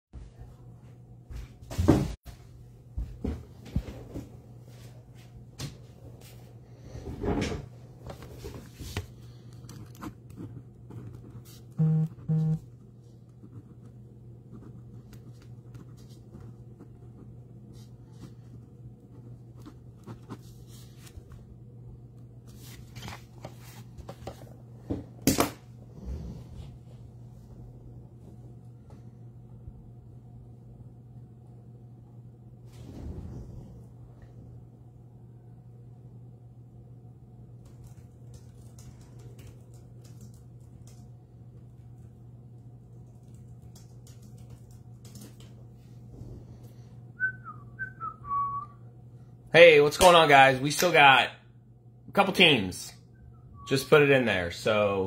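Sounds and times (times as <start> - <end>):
steady low hum: 0.2 - 55.0
paper rustling: 22.4 - 24.5.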